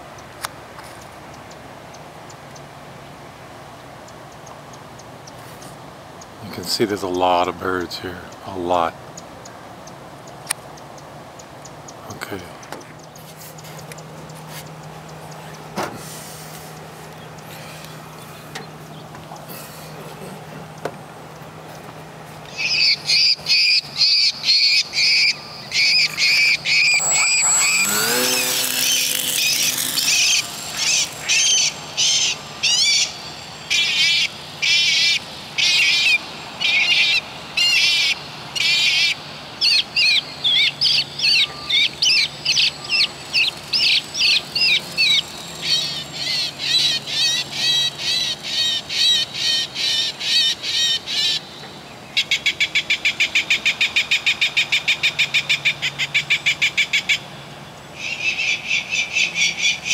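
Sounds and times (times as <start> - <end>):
high bird-like chirping calls: 22.5 - 57.3
rising whistle: 22.7 - 35.1.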